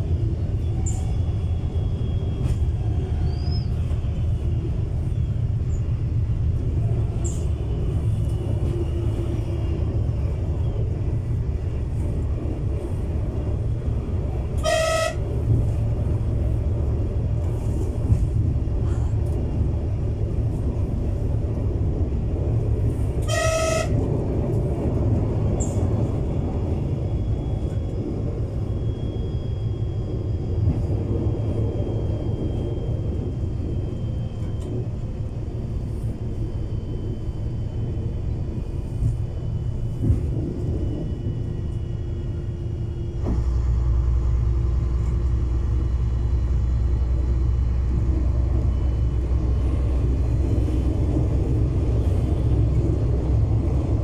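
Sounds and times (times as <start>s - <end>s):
railbus engine and wheels rumbling: 0.0s - 54.0s
train horn blast: 14.6s - 15.5s, 23.2s - 24.1s.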